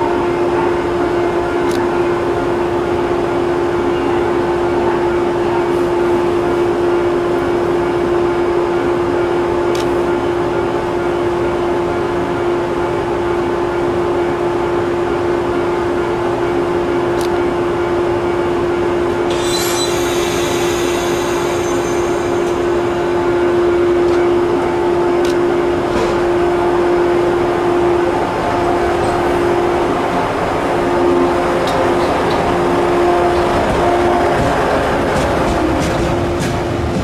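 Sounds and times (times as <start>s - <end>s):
electric train equipment hum: 0.0s - 37.0s
hiss: 19.3s - 22.3s.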